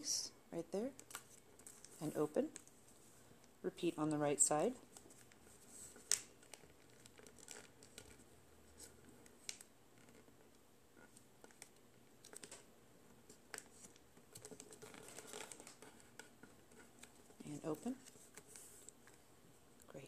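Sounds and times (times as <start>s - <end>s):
paper crinkling and folding: 4.8s - 19.3s.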